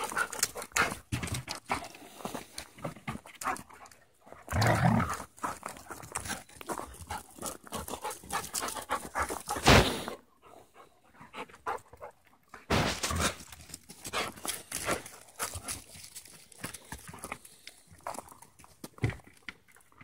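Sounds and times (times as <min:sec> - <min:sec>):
dogs panting quickly: 0:00.0 - 0:04.0, 0:05.4 - 0:12.5, 0:13.3 - 0:15.9.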